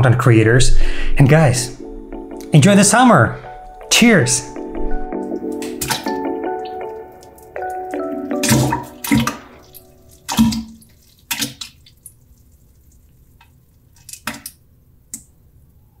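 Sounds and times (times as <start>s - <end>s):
music bed: 1.2s - 10.4s
wet plops and splashes: 5.3s - 14.5s.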